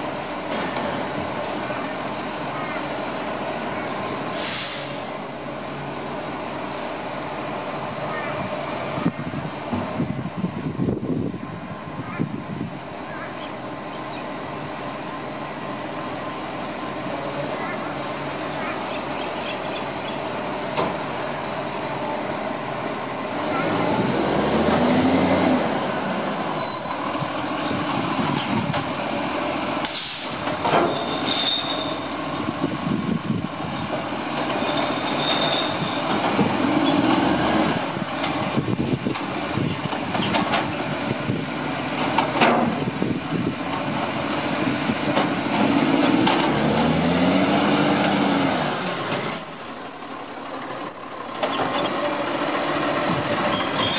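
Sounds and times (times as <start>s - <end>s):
air hiss: 4.3s - 5.3s, 29.8s - 30.4s
truck engine revving: 23.3s - 26.4s, 35.9s - 39.7s, 41.0s - 49.5s.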